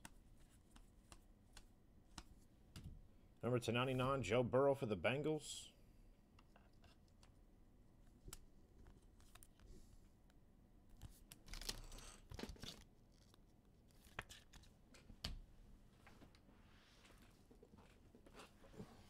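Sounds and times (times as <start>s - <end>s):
trading cards rustling and clicking: 11.0s - 15.1s.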